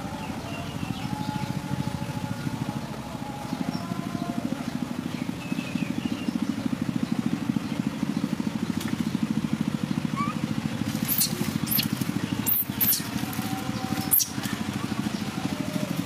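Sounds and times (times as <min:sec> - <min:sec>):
small engine running: 0:00.0 - 0:16.0
sharp crackles: 0:10.8 - 0:14.6.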